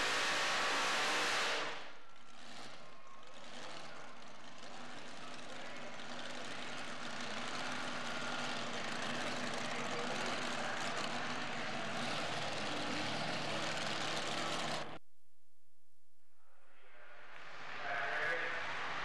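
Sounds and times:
truck engine idling: 0:00.0 - 0:15.0.

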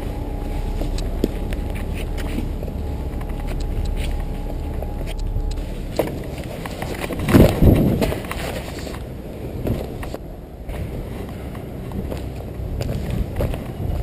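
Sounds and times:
low rumble: 0:00.0 - 0:14.0
scuffs and knocks of climbing: 0:00.0 - 0:14.0.

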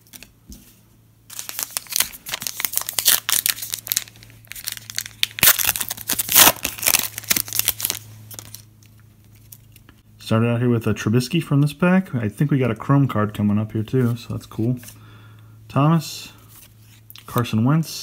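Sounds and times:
card pack wrapper tearing: 0:01.3 - 0:08.7.

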